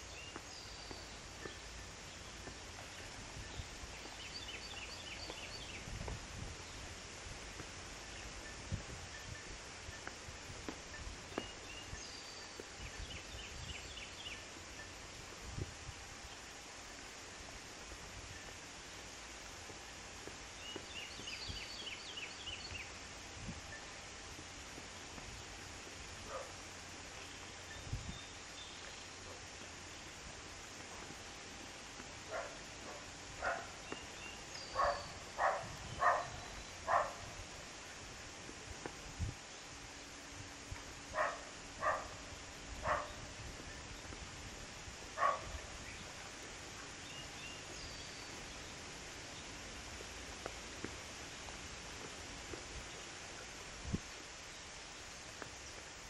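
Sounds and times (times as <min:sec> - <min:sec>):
bird chirping: 0:00.0 - 0:06.0, 0:10.9 - 0:15.0, 0:32.3 - 0:37.3, 0:46.9 - 0:49.6
outdoor background hiss: 0:00.0 - 0:56.0
dog barking: 0:26.3 - 0:26.5, 0:32.3 - 0:33.7, 0:34.8 - 0:37.2, 0:41.2 - 0:42.1, 0:42.8 - 0:43.2, 0:45.2 - 0:45.5.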